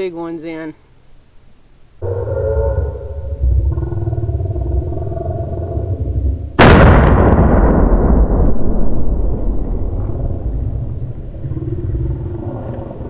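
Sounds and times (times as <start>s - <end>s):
low rumbling: 2.0s - 13.0s
rifle shot: 6.6s - 10.3s.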